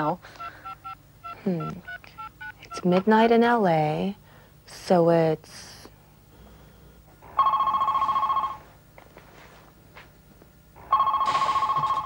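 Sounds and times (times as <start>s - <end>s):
telephone ringing: 0.0s - 2.9s, 7.2s - 8.8s, 10.8s - 12.0s.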